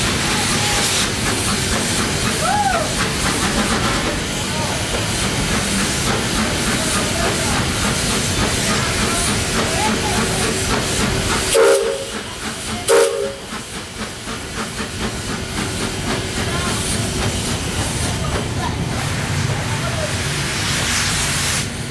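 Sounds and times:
steam locomotive hissing: 0:00.0 - 0:21.9
steam whistle toots: 0:11.5 - 0:12.2, 0:12.9 - 0:13.5.

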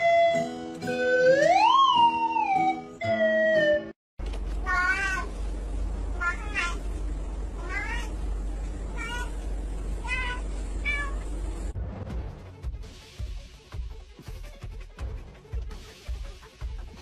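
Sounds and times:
steady low hum: 0:04.2 - 0:11.8
cat meowing: 0:04.6 - 0:05.3, 0:06.2 - 0:06.8, 0:07.6 - 0:08.2, 0:08.9 - 0:09.4, 0:10.0 - 0:11.3.

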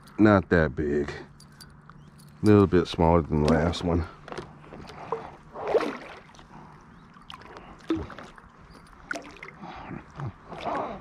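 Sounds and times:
fish splashing at water surface: 0:04.9 - 0:06.5, 0:07.1 - 0:09.6.

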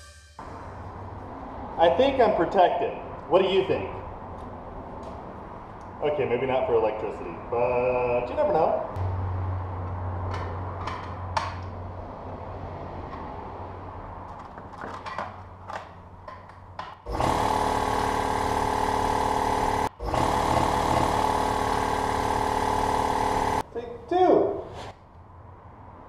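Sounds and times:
air compressor running: 0:17.1 - 0:23.7.

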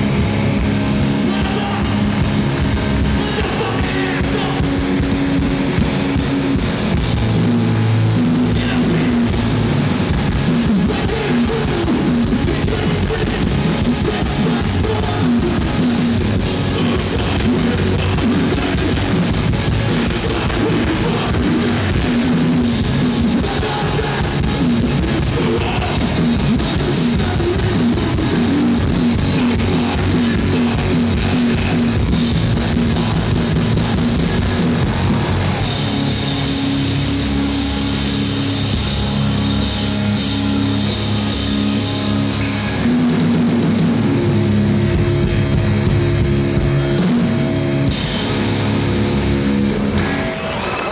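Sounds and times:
distorted electric guitars: 0:00.0 - 0:50.9
drum kit: 0:00.0 - 0:50.9.

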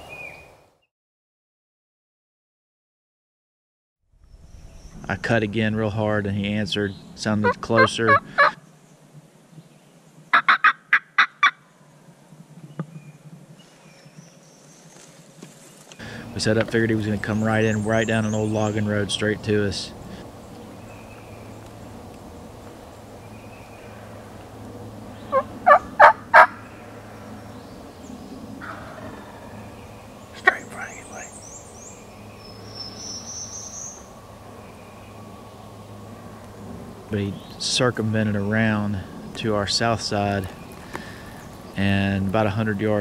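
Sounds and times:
turkey calls: 0:07.2 - 0:08.6, 0:10.3 - 0:11.6, 0:25.1 - 0:27.0, 0:28.6 - 0:32.0
turkey call cutting notes: 0:07.4 - 0:08.6, 0:10.3 - 0:11.6, 0:25.3 - 0:26.6.

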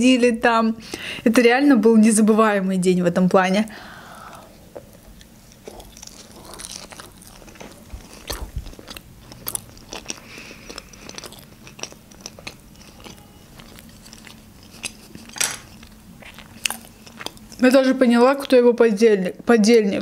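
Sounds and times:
chewing food: 0:04.3 - 0:18.6.

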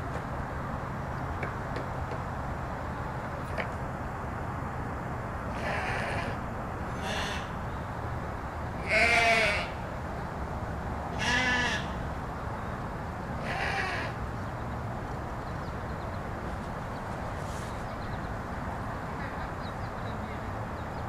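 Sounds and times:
sheep bleating: 0:05.5 - 0:06.4, 0:08.8 - 0:09.8, 0:11.2 - 0:12.0.

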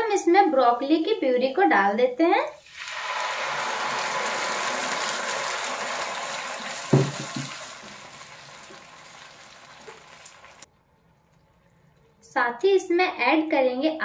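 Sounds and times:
puree sizzling in hot oil: 0:02.6 - 0:10.7
knock: 0:06.9 - 0:07.6.

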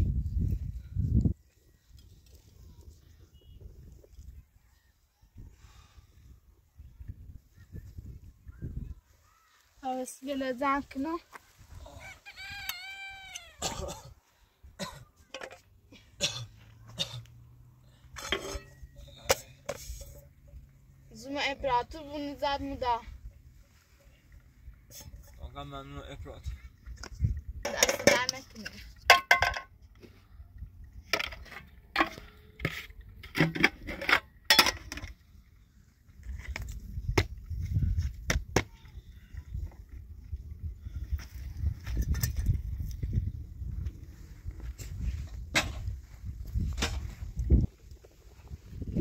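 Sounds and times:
high-pitched animal call: 0:11.8 - 0:13.6.

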